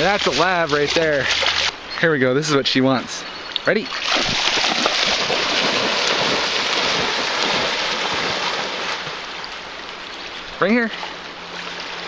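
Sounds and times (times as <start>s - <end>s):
dog splashing through water: 0.0s - 1.7s, 3.9s - 9.5s.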